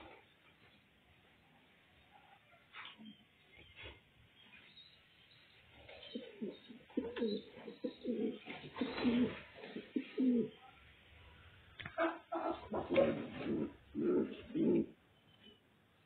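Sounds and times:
pigeons cooing: 0:05.8 - 0:10.6, 0:12.0 - 0:15.0.

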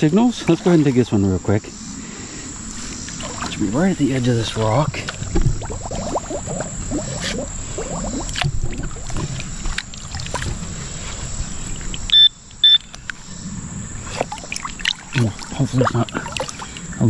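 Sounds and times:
metal detector beeps: 0:12.1 - 0:13.0.

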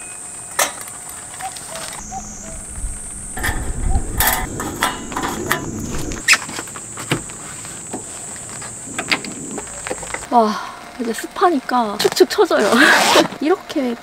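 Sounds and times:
high-pitched insect drone: 0:01.9 - 0:06.4
gas burner flame rushing: 0:02.0 - 0:06.3.

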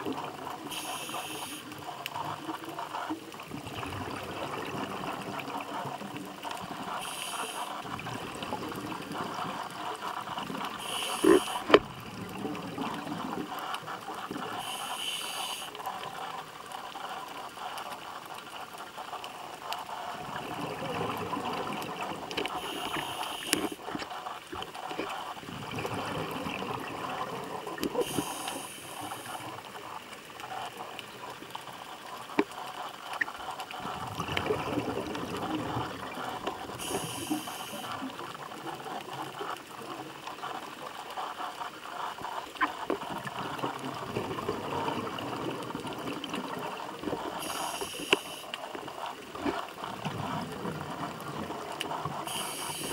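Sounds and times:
exhaled bubbles gurgling: 0:00.0 - 0:52.9
regulator inhale hiss: 0:00.6 - 0:01.8, 0:06.8 - 0:08.0, 0:10.7 - 0:11.8, 0:14.4 - 0:16.0, 0:22.4 - 0:24.1, 0:27.9 - 0:29.6, 0:36.7 - 0:38.2, 0:47.3 - 0:48.8, 0:52.0 - 0:52.9.

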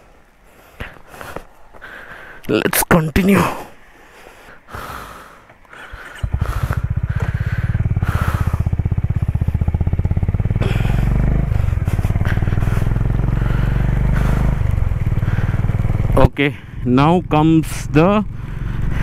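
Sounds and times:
motorcycle engine thumping: 0:05.5 - 0:16.4.

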